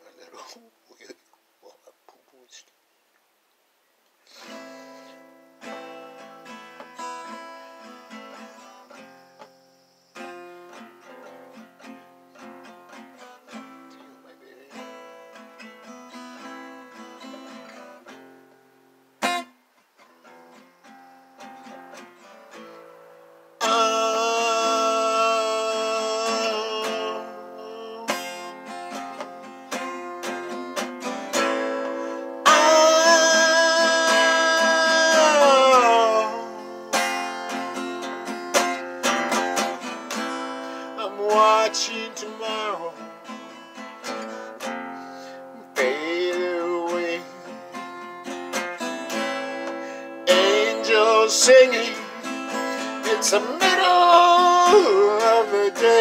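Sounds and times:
acoustic guitar: 0.0s - 2.8s, 4.1s - 56.0s
man singing: 23.6s - 37.8s, 39.2s - 44.7s, 45.5s - 47.8s, 49.1s - 56.0s.

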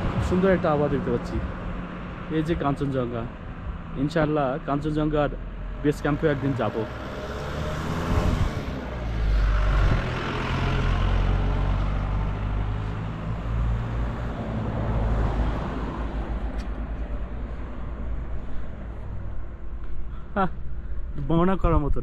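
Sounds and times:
vehicle passing: 0.0s - 19.8s.

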